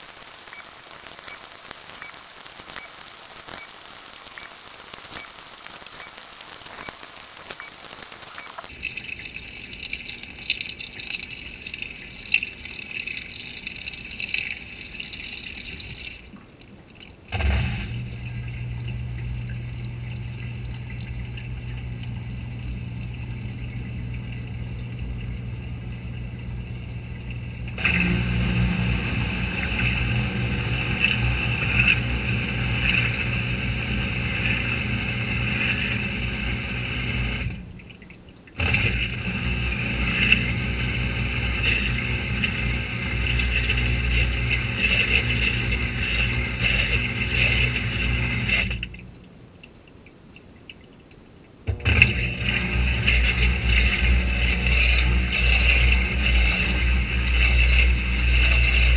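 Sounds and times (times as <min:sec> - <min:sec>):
washing machine drain pump humming: 0:08.7 - 0:16.3, 0:17.3 - 0:49.2, 0:51.6 - 0:58.9.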